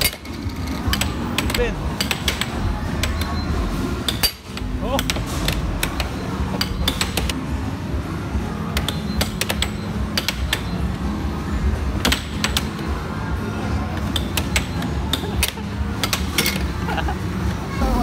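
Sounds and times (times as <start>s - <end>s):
air hockey puck clacking: 0.0s - 3.3s, 4.0s - 7.4s, 8.7s - 10.8s, 12.0s - 12.9s, 13.9s - 16.7s.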